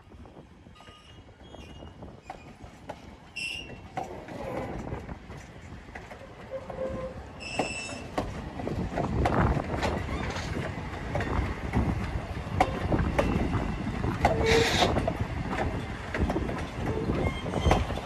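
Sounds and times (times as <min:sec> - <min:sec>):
train rumble: 0:00.0 - 0:18.0
train wheels clicking over rail joints: 0:00.2 - 0:18.0
high-pitched wheel squeals: 0:03.3 - 0:03.8, 0:06.6 - 0:08.1, 0:14.4 - 0:14.9.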